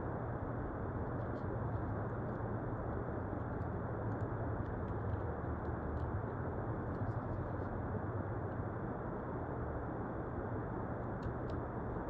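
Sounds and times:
low hum and hiss: 0:00.0 - 0:12.0
faint light ticks: 0:11.2 - 0:11.7.

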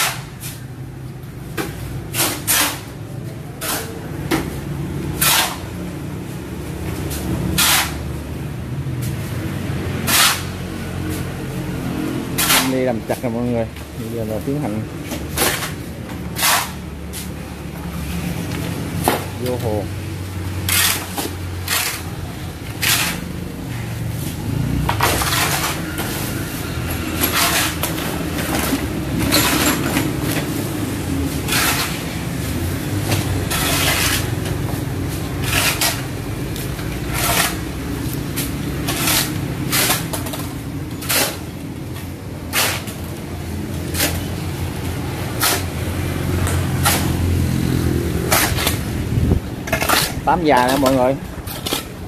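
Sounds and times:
trowel scraping mortar: 0:02.0 - 0:04.2, 0:05.1 - 0:05.8, 0:07.1 - 0:08.2, 0:10.0 - 0:10.6, 0:12.3 - 0:13.6, 0:14.2 - 0:17.3, 0:20.6 - 0:30.1, 0:31.3 - 0:32.4, 0:33.2 - 0:41.5, 0:43.8 - 0:44.4, 0:45.3 - 0:45.9, 0:48.2 - 0:52.0.

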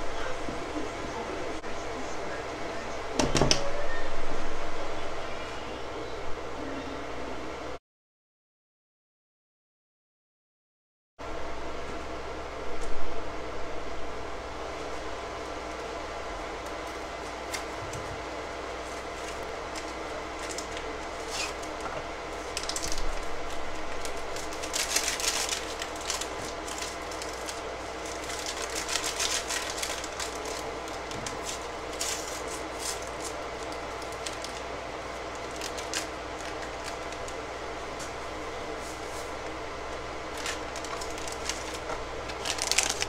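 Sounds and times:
steady background hum: 0:00.0 - 0:07.8, 0:11.2 - 0:43.0
paper packaging crinkling and tearing: 0:16.6 - 0:43.0.

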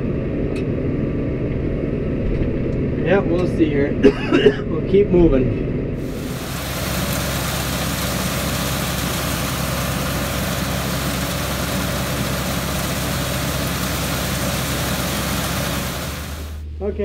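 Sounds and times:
dense hiss: 0:06.0 - 0:16.6
machine drone: 0:06.0 - 0:16.8.

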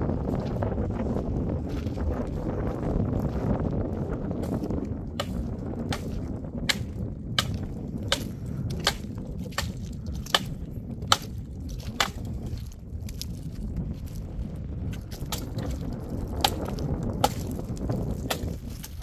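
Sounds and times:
wind rumble on microphone: 0:00.0 - 0:19.0
tool chopping wood: 0:05.2 - 0:12.7, 0:15.1 - 0:19.0.

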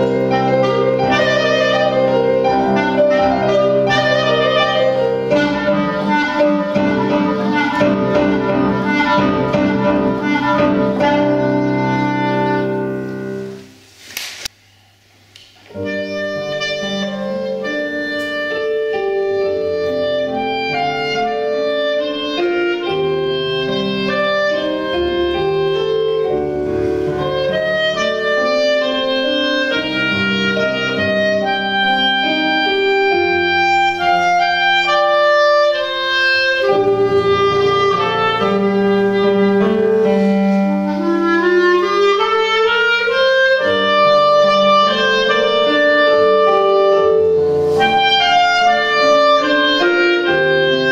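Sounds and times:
solo clarinet melody: 0:00.0 - 0:13.7, 0:15.7 - 0:50.9
piano accompaniment: 0:00.0 - 0:14.8, 0:15.4 - 0:50.9.

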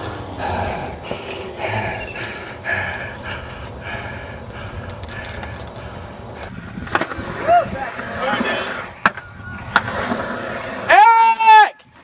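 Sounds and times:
breathy bursts of breath: 0:00.0 - 0:06.8.

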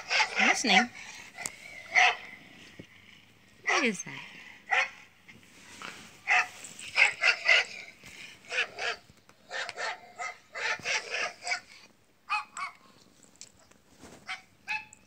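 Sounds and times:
dog barking through small speaker: 0:00.0 - 0:00.9, 0:01.9 - 0:02.2, 0:03.6 - 0:04.0, 0:04.7 - 0:05.0, 0:06.3 - 0:07.8, 0:08.5 - 0:11.6, 0:12.3 - 0:12.8, 0:14.3 - 0:15.0.

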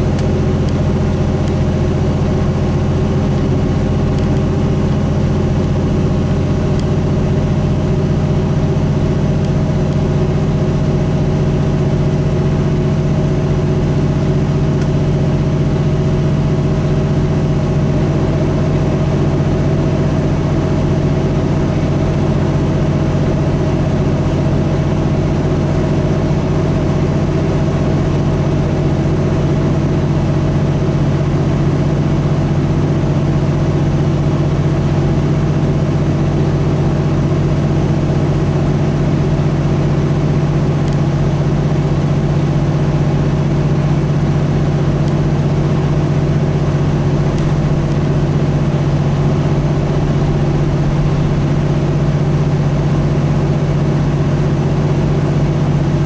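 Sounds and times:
diesel truck engine drone: 0:00.0 - 0:56.0
road noise: 0:46.6 - 0:54.2.

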